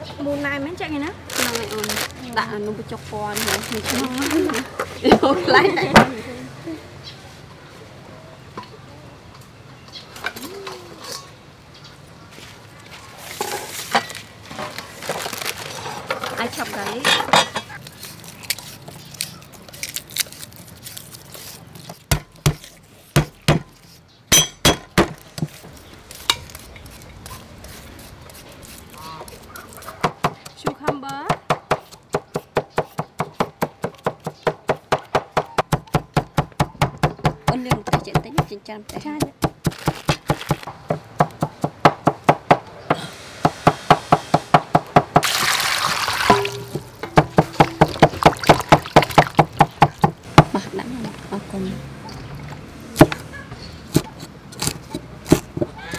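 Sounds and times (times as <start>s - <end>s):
cleaver chopping on wooden board: 22.1s - 25.6s
water splashing in steel bowl: 45.2s - 49.6s.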